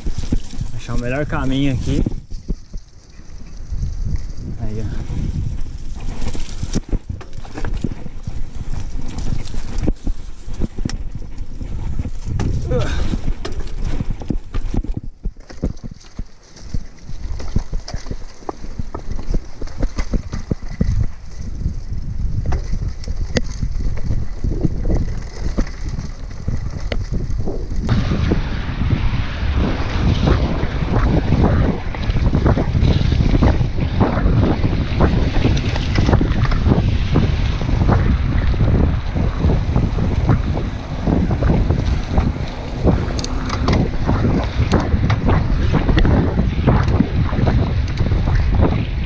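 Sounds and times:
bike rattling: 0.0s - 49.0s
low rumble: 0.0s - 49.0s
tyre noise: 0.0s - 49.0s
wind buffeting microphone: 0.0s - 49.0s
bike tyres knocking on stones: 5.4s - 28.1s.

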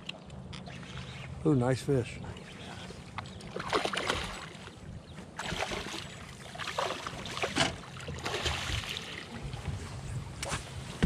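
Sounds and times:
fish splashing in water: 3.5s - 4.7s, 5.4s - 9.3s.

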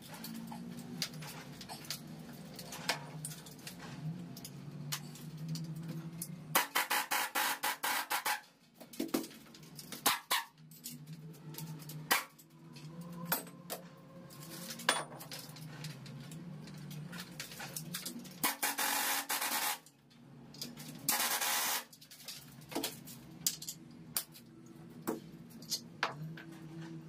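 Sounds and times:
pneumatic impact wrench: 6.5s - 8.4s, 18.4s - 19.8s, 21.1s - 21.9s
metal clinks and knocks: 8.7s - 18.4s.

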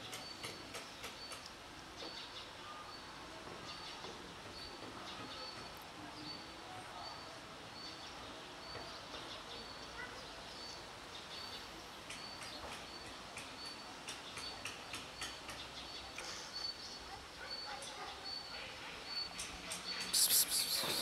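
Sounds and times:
small birds chirping: 7.8s - 21.0s.

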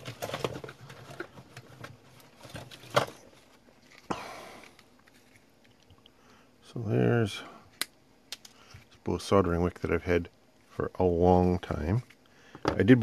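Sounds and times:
objects handled on a workbench: 0.0s - 6.0s, 12.0s - 13.0s.

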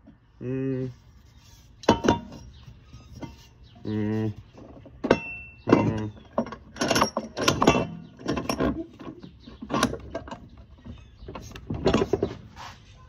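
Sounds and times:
metal exhaust pipe clanking: 1.8s - 3.5s, 4.6s - 12.4s.

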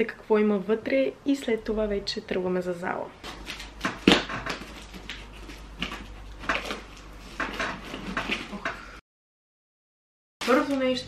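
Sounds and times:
packing tape tearing: 3.2s - 7.1s.

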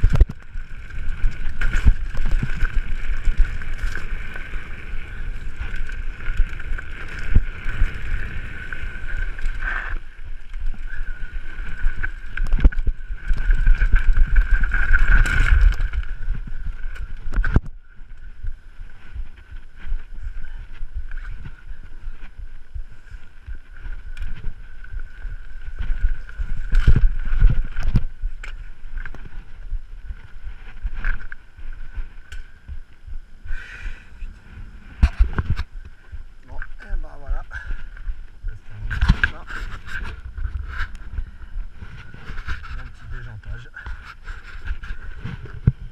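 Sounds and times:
bike knocking and rattling: 0.0s - 34.3s
wind rushing over microphone: 0.0s - 45.9s.

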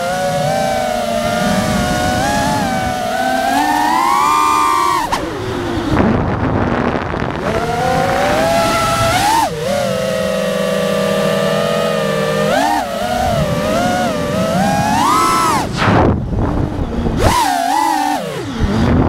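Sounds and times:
drone motors whining: 0.0s - 19.0s
rushing air noise: 13.2s - 17.4s.

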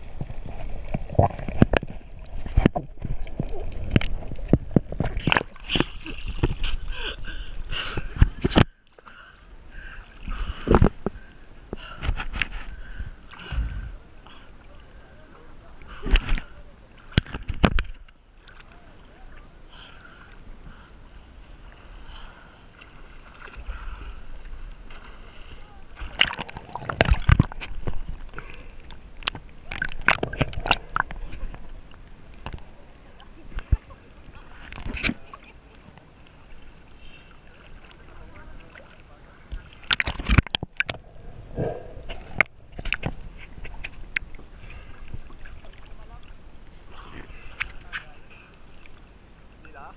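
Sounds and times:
sea water lapping and sloshing: 0.0s - 49.9s
underwater splashing clicks: 0.9s - 6.6s, 26.1s - 28.0s, 28.8s - 31.2s, 39.8s - 41.3s
muffled underwater bubbling: 25.9s - 35.5s, 39.4s - 47.5s
sharp water splashes: 26.0s - 31.4s, 39.7s - 44.3s.

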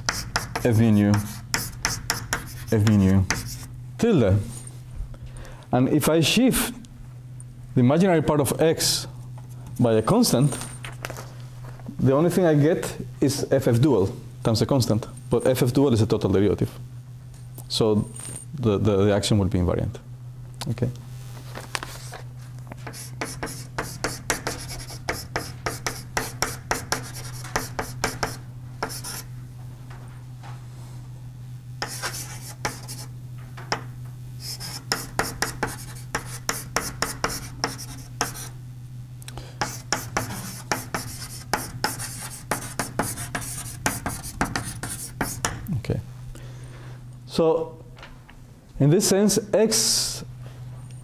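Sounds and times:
chalk tapping and scratching on board: 0.0s - 3.7s, 22.8s - 29.3s, 31.8s - 33.1s, 34.4s - 38.6s, 39.6s - 45.6s
steady low hum: 0.0s - 51.0s.

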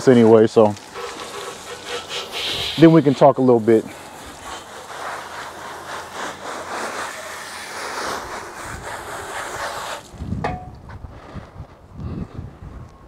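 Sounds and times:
water spraying from hose: 0.0s - 10.1s.

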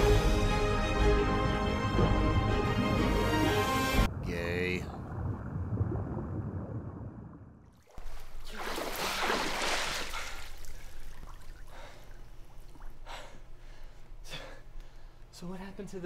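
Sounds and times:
water sloshing: 1.4s - 13.1s
water splashing loudly: 7.8s - 11.6s.

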